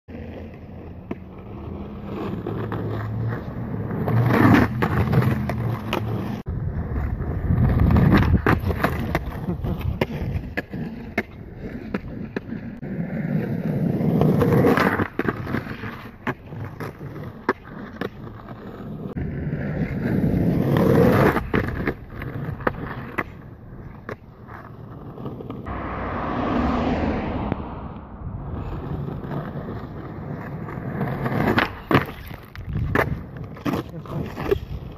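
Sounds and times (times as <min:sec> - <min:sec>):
skateboard clacking on ground: 0:00.1 - 0:19.1, 0:28.6 - 0:34.9
skateboard wheels rolling on asphalt: 0:00.1 - 0:34.9.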